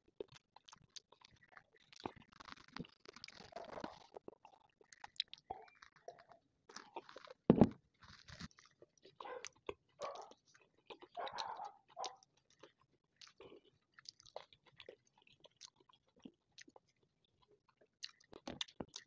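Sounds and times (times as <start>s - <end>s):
chewing: 0.0s - 19.0s
wet mouth clicks: 9.4s - 16.8s.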